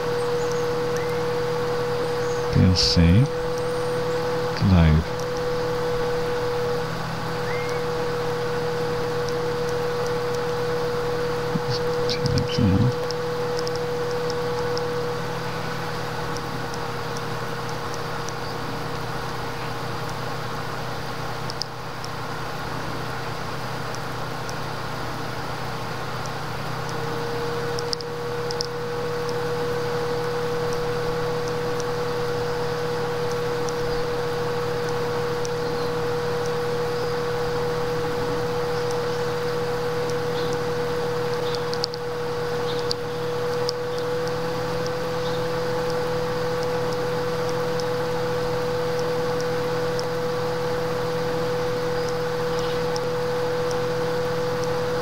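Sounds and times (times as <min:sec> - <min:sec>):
electrical hum and whine: 0:00.0 - 0:55.0
faint clicks: 0:09.1 - 0:20.7, 0:21.4 - 0:22.2, 0:26.1 - 0:55.0.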